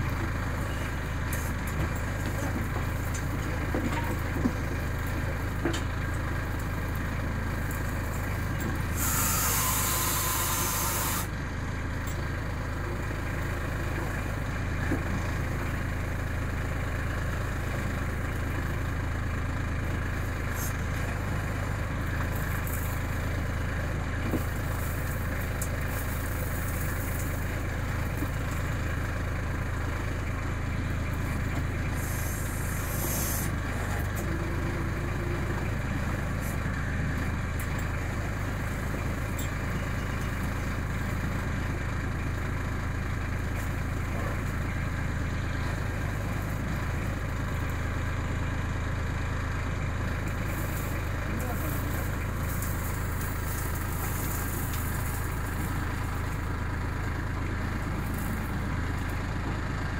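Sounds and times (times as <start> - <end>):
diesel tractor engine running: 0.0 - 59.9
backhoe digging into gravel: 7.6 - 11.4, 31.8 - 34.8, 50.4 - 56.6.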